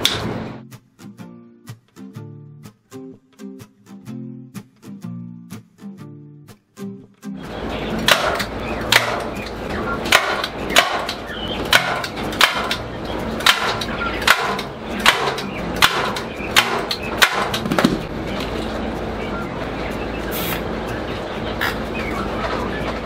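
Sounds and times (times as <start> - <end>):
sharp knocks: 8.0 - 9.5, 10.1 - 18.1.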